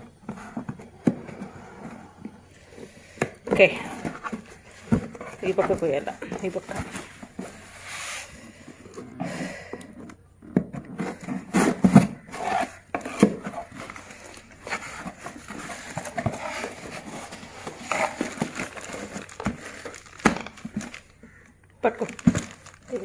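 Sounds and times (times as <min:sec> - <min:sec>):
plastic bag rustling: 0:02.6 - 0:08.6, 0:11.0 - 0:23.0
cardboard box being handled: 0:10.6 - 0:23.0.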